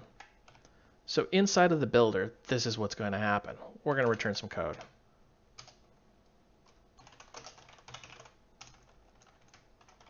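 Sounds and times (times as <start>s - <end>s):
typing on computer keyboard: 0.2s - 0.7s, 5.6s - 5.8s, 7.0s - 10.0s.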